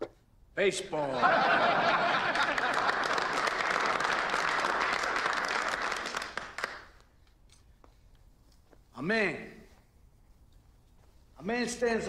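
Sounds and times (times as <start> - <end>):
men applauding: 2.0 - 7.0.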